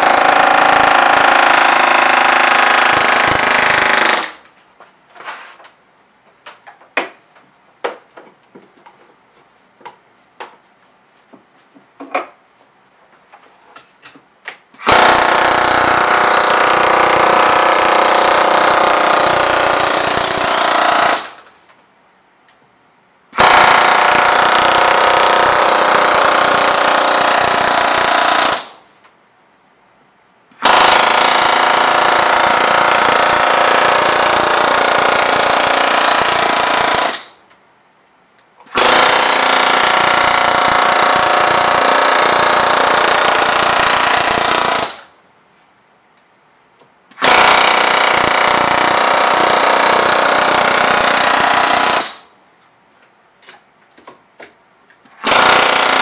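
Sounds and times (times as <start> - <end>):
pneumatic hammer on metal: 0.0 - 4.4, 14.8 - 21.5, 23.4 - 28.8, 30.6 - 37.4, 38.7 - 45.1, 47.1 - 52.3, 55.1 - 56.0.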